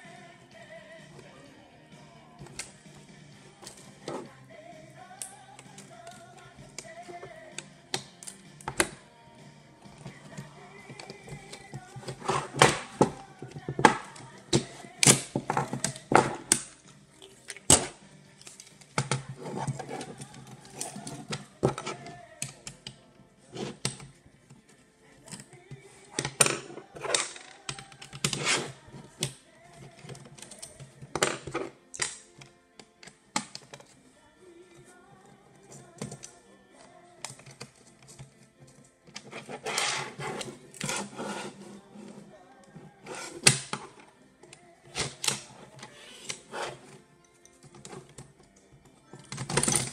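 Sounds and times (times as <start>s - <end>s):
plastic and metal parts clicking: 9.9s - 34.0s, 34.7s - 49.9s.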